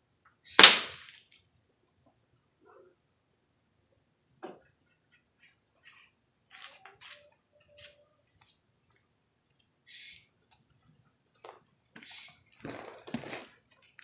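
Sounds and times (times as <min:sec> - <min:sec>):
bird chirp: 0:09.8 - 0:10.4, 0:12.0 - 0:12.5.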